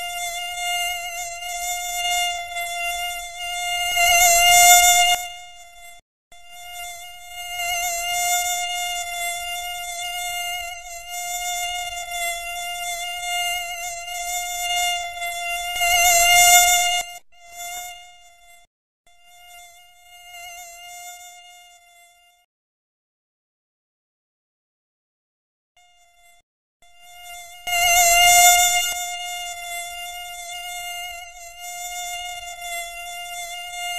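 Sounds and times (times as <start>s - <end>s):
mosquito whine: 0.0s - 22.5s, 25.8s - 33.9s.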